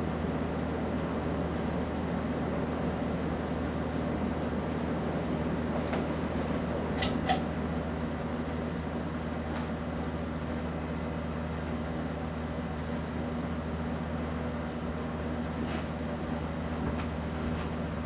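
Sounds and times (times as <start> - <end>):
ceiling fan humming: 0.0 - 18.0
short click: 7.0 - 7.4.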